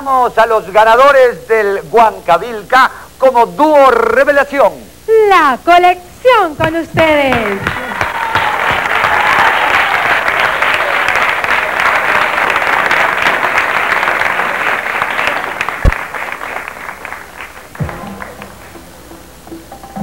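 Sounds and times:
audience applauding: 0:07.3 - 0:18.9.

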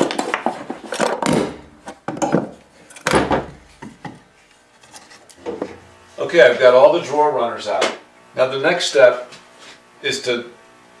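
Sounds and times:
sharp wooden knocks and cracks: 0:00.0 - 0:04.2.

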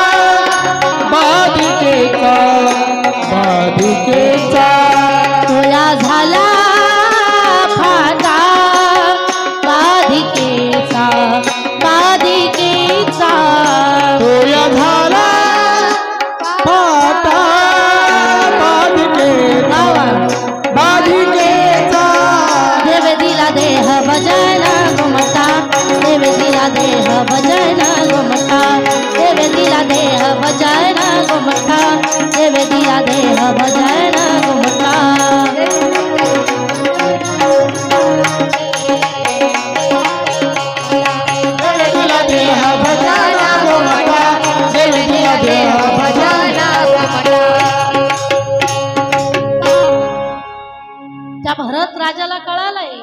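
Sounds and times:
woman singing into microphone: 0:00.0 - 0:49.9, 0:51.4 - 0:53.0
hand drum rhythm: 0:00.0 - 0:50.0
harmonium holding notes: 0:00.0 - 0:53.0
held instrumental drone: 0:17.6 - 0:51.6.

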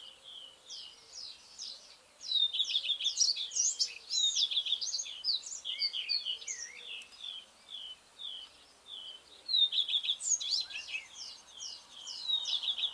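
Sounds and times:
songbirds singing: 0:00.0 - 0:12.9.

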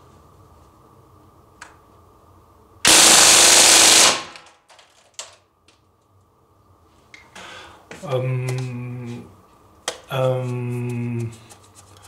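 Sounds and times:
submachine gun full-auto burst: 0:02.9 - 0:04.5.

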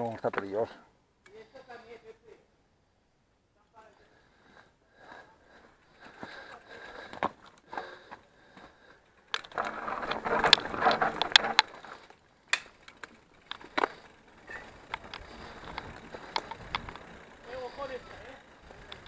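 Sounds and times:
bike rattling over rough trail: 0:05.0 - 0:19.0.

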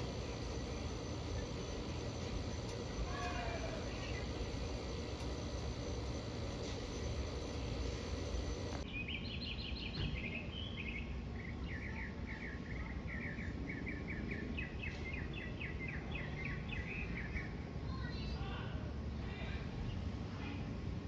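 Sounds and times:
low outdoor rumble: 0:00.0 - 0:08.9.

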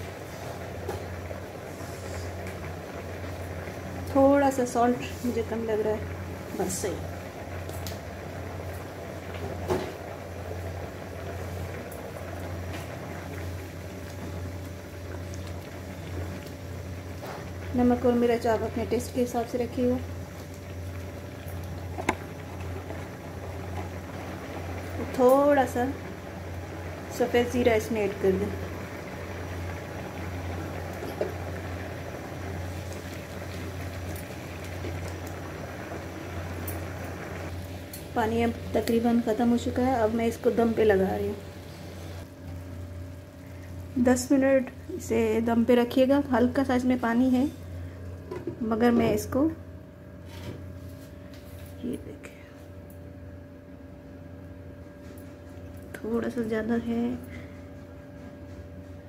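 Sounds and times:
rice bubbling in a pan: 0:00.0 - 0:52.0, 0:52.7 - 0:56.6
steady low hum: 0:00.0 - 0:59.0.

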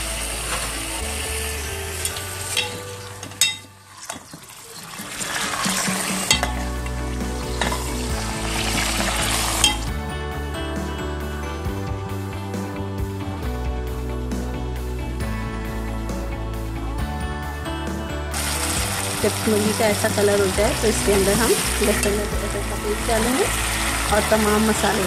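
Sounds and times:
background music: 0:00.0 - 0:04.1, 0:05.3 - 0:25.0
chicken sizzling in hot oil: 0:00.0 - 0:09.9, 0:18.3 - 0:25.0.

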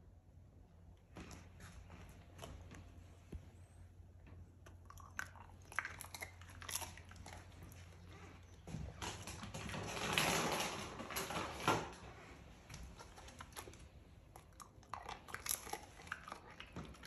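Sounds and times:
dog crunching a treat: 0:04.6 - 0:17.0.

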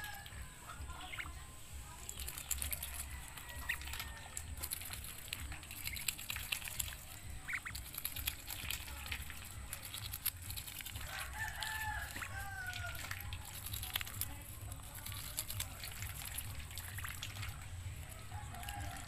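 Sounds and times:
duck bill clicking: 0:02.1 - 0:19.0.

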